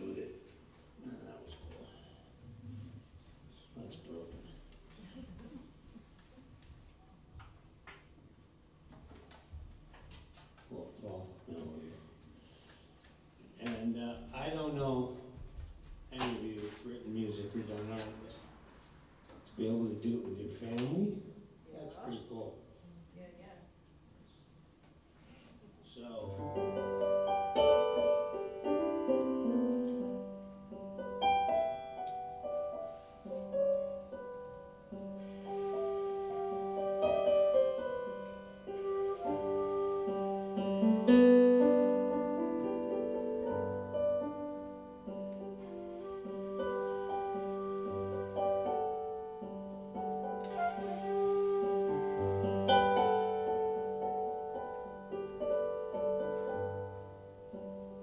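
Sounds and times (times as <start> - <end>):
digital piano playing chords: 26.4 - 35.4, 36.2 - 51.1, 52.2 - 58.0
flute playing slow melody: 34.9 - 44.3, 45.4 - 53.9.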